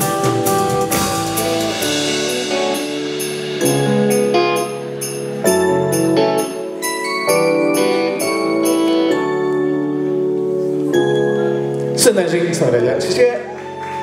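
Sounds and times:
steady drum beat: 0.0s - 6.8s
keyboard chords: 0.0s - 13.6s.

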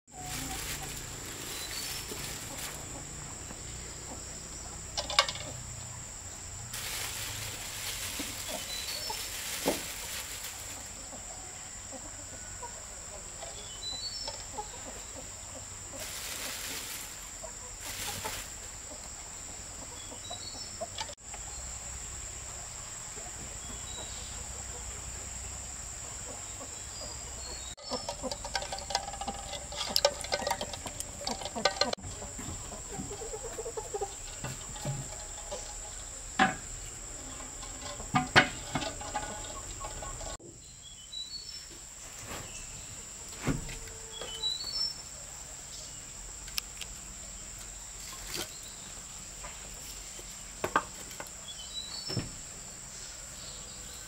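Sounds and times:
chickens clucking: 0.1s - 40.4s.

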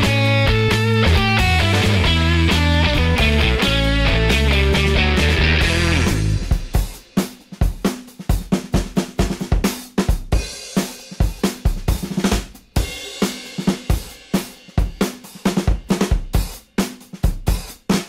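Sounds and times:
drum kit beat: 0.0s - 18.0s.

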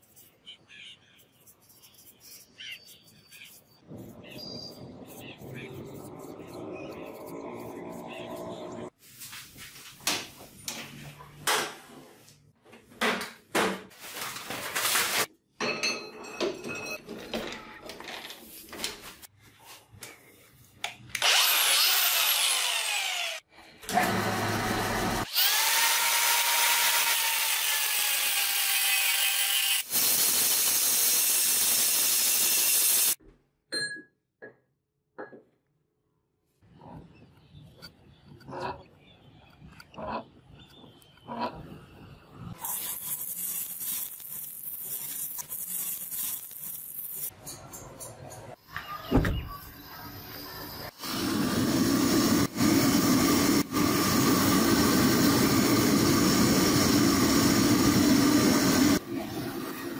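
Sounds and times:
power tools running: 21.2s - 32.9s.

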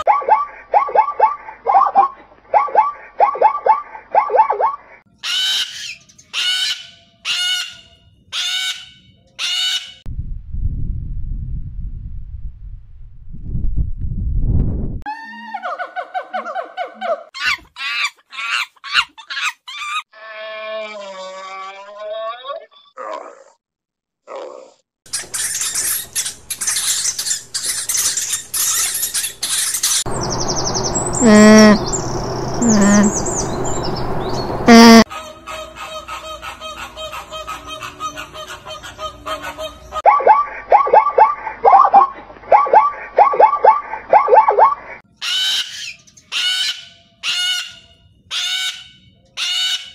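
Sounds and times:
cockatoo screeching: 5.2s - 10.0s
small birds chirping: 25.1s - 35.0s
alpaca humming: 30.1s - 33.4s
low rumbling noise: 30.1s - 35.0s.

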